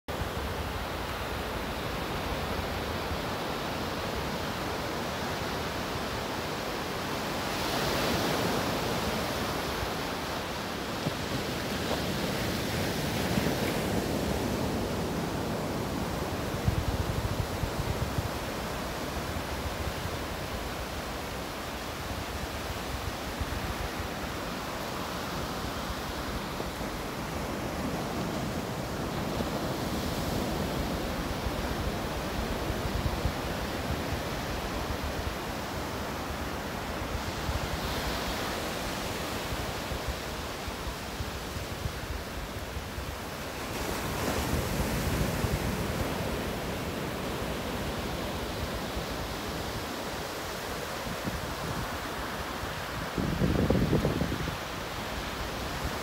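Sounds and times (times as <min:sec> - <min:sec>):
wind buffeting microphone: 0:10.6 - 0:21.4, 0:51.1 - 0:56.0.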